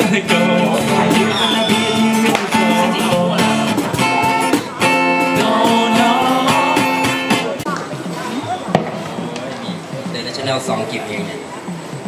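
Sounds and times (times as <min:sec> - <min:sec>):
acoustic guitar strumming: 0:00.0 - 0:12.0.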